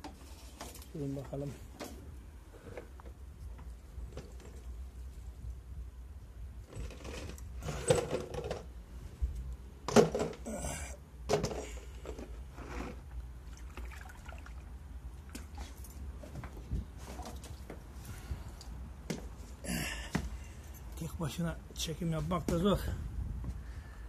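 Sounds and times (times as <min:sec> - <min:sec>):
water pouring: 0:13.4 - 0:14.8.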